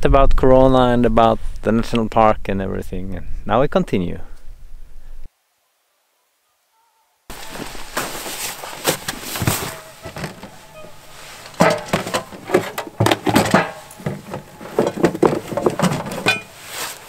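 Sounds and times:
gear rustling and knocking: 0:07.3 - 0:17.0.

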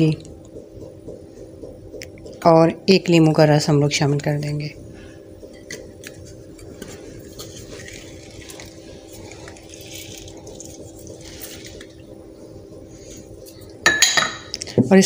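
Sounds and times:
steady low hum: 0:00.0 - 0:15.0
citrus press squeezing: 0:05.6 - 0:12.0
juice dripping faintly: 0:06.8 - 0:12.9.

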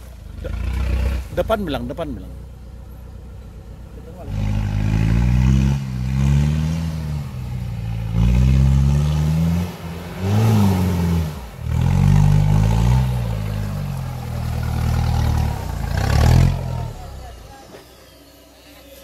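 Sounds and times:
engine revving hard: 0:00.0 - 0:01.7, 0:04.2 - 0:17.5.

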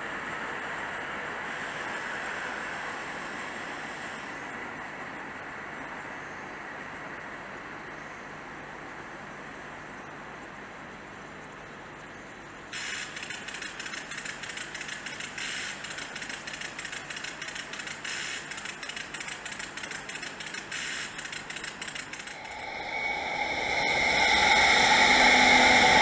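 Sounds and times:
distant rail traffic rumble: 0:00.0 - 0:26.0
rapid clicking rattle: 0:12.8 - 0:23.0.

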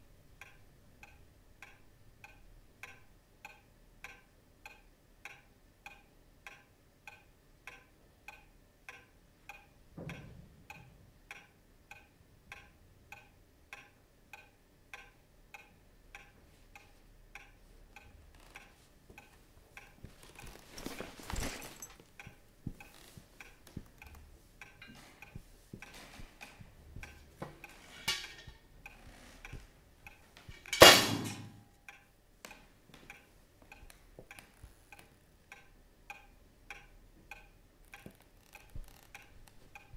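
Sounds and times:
clock ticking: 0:00.0 - 0:39.9.

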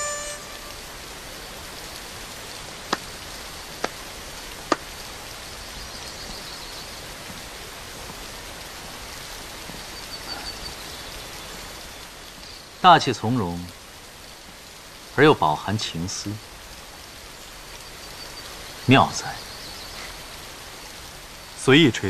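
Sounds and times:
faint high chirps: 0:00.0 - 0:01.9, 0:09.8 - 0:12.7
waterfall rushing: 0:00.0 - 0:22.0.

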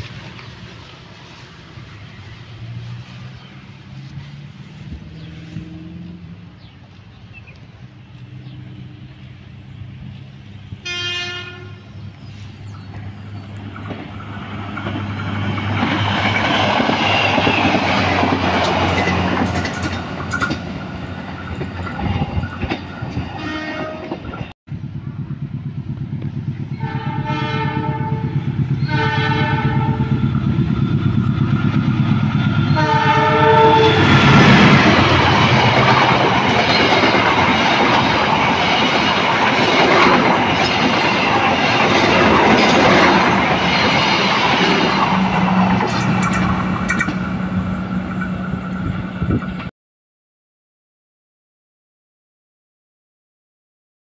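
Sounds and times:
diesel locomotive approaching: 0:00.0 - 0:49.7
train wheels on rail: 0:00.0 - 0:49.7
train horn blasts: 0:10.8 - 0:12.0, 0:23.3 - 0:24.2, 0:26.7 - 0:30.4, 0:32.6 - 0:35.2.

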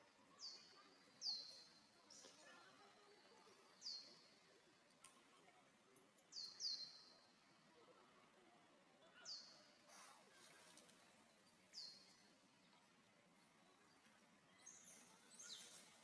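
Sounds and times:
bird chirping: 0:14.5 - 0:16.0.

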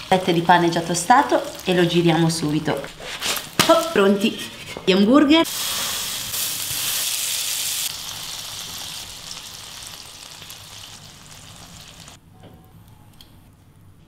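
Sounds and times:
burger patties sizzling in pan: 0:05.4 - 0:12.2.

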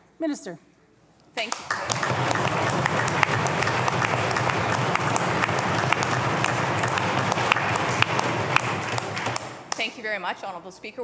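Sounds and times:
crowd applauding: 0:01.4 - 0:09.8.

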